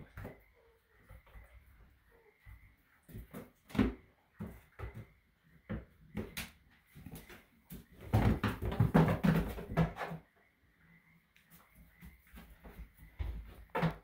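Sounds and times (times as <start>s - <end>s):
hooves knocking on plastic crate: 7.7s - 10.2s.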